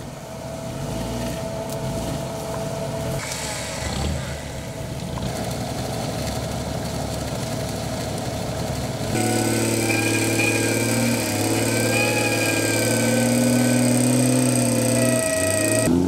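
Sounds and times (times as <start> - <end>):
off-road engine droning: 0.0 - 16.0
high whine: 9.2 - 15.9.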